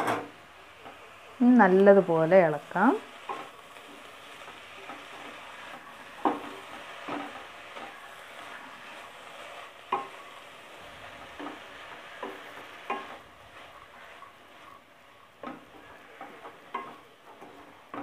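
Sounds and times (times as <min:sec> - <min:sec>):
soft steady sizzle: 0:00.0 - 0:18.0
spatula stirring beans in pan: 0:00.0 - 0:18.0.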